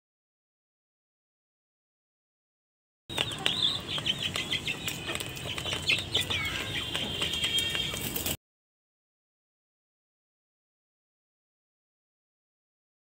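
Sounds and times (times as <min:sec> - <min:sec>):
beaks pecking on steel plate: 0:03.1 - 0:08.4
chicks cheeping: 0:03.1 - 0:08.4.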